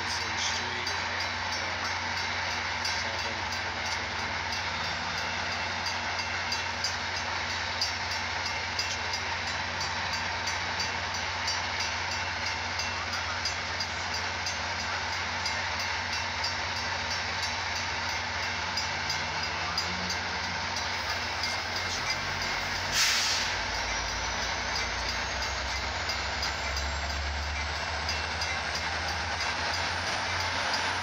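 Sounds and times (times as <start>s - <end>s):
crossing signal bell ringing: 0.0s - 31.0s
diesel locomotive idling: 0.0s - 31.0s.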